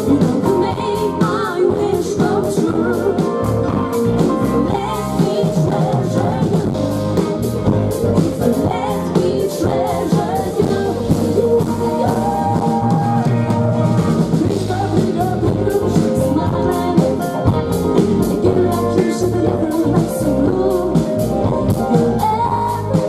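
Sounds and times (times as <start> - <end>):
woman singing lead vocal: 0.0 - 7.2, 7.9 - 23.0
live pop-rock band: 0.0 - 23.0.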